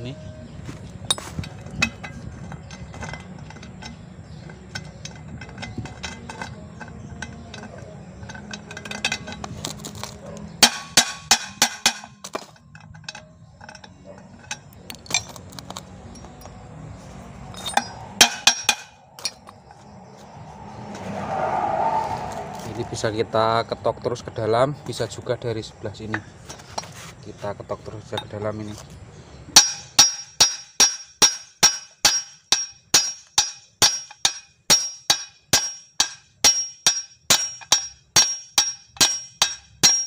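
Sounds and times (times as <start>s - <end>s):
clinks of loose metal parts: 1.1s - 16.7s, 17.4s - 19.8s, 27.6s - 28.9s, 29.5s - 40.0s
hammer tapping on metal: 17.6s - 19.6s.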